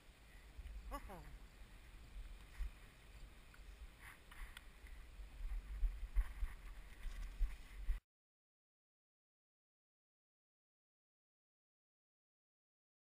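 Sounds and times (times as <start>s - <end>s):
wind rumbling on microphone: 0.0s - 8.0s.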